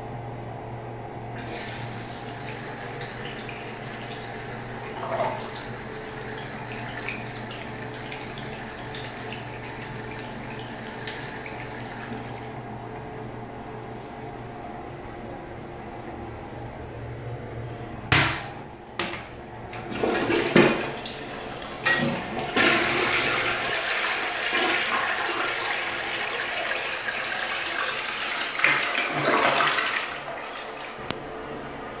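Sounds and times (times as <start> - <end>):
water gushing into toilet bowl: 1.4 - 13.0, 19.8 - 31.1
toilet flush clicks: 19.8 - 23.9, 27.9 - 30.1.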